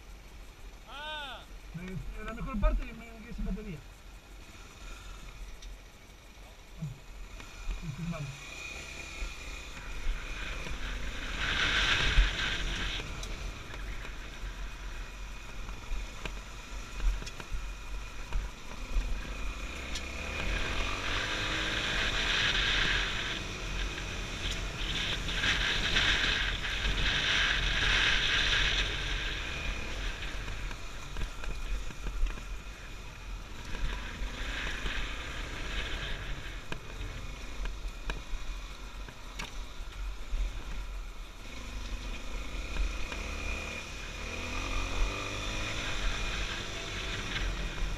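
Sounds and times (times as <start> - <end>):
motorcycle engine revving: 2.0 - 47.9
rushing noise: 7.5 - 15.5.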